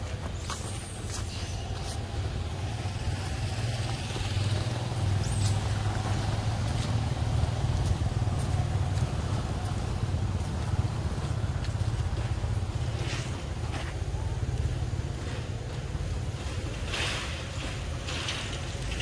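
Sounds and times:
motor vehicle engine running: 0:00.0 - 0:19.0.

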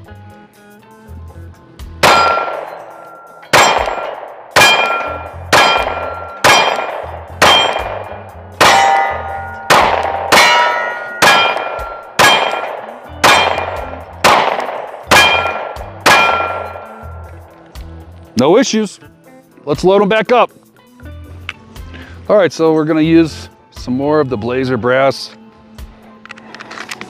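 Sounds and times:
pistol shots: 0:02.0 - 0:17.3
ring of struck steel target: 0:02.0 - 0:17.3.

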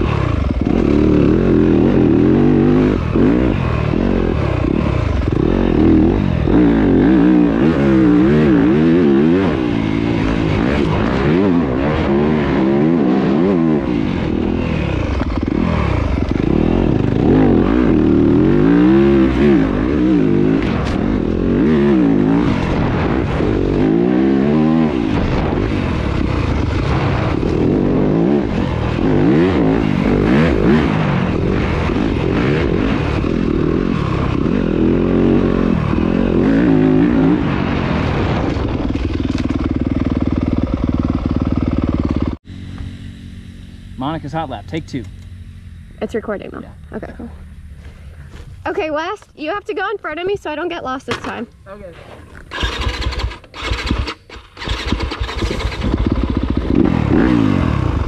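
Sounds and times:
dirt bike engine revving: 0:00.0 - 0:58.0
rushing noise: 0:07.2 - 0:44.7
clatter: 0:38.2 - 0:42.9, 0:52.2 - 0:57.5.

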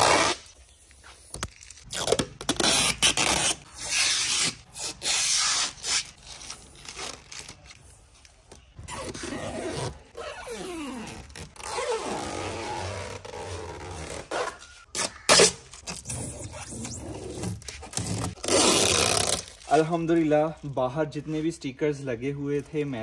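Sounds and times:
plastic film ripping off: 0:10.6 - 0:20.3.

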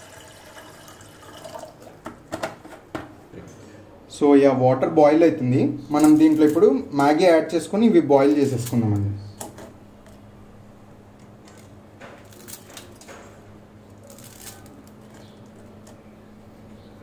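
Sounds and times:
dry noodles crunching: 0:13.9 - 0:15.9.

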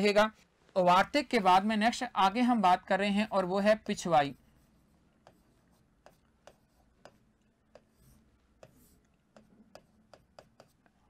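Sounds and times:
pen writing ticks and scratching: 0:03.4 - 0:11.0.

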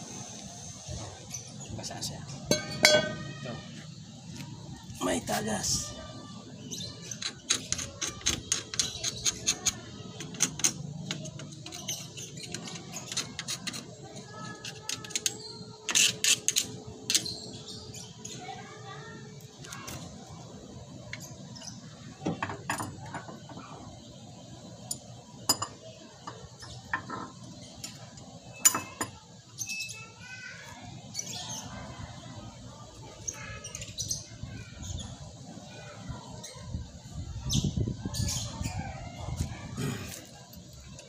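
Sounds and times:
birds chirping: 0:00.0 - 0:41.0
wrench clicking and knocking on metal: 0:07.1 - 0:13.9.

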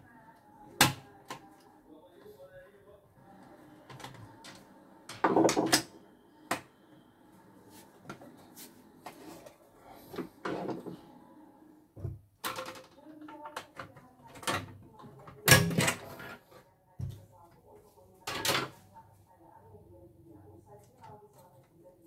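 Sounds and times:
machine parts knocking on workbench: 0:05.1 - 0:05.8.

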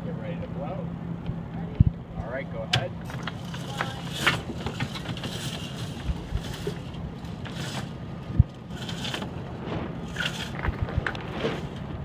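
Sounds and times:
steady low hum: 0:00.0 - 0:12.0
wind buffeting microphone: 0:09.3 - 0:12.0.

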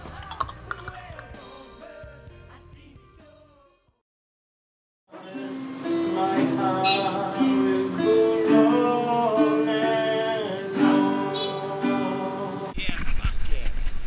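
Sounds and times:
man singing slow melody: 0:00.0 - 0:03.9, 0:05.1 - 0:12.7
acoustic guitar strumming: 0:05.1 - 0:12.7.

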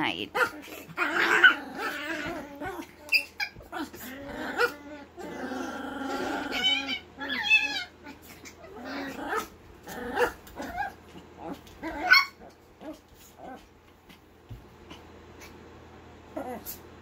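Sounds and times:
small dogs whining and yipping: 0:00.4 - 0:09.5, 0:10.1 - 0:13.6, 0:16.3 - 0:16.8.

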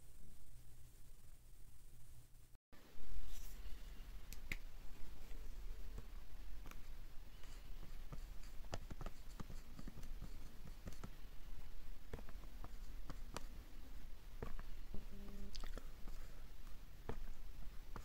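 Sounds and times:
steady low hum: 0:00.0 - 0:18.0
marker tapping and scratching: 0:05.9 - 0:13.6, 0:14.4 - 0:15.1, 0:16.0 - 0:18.0.

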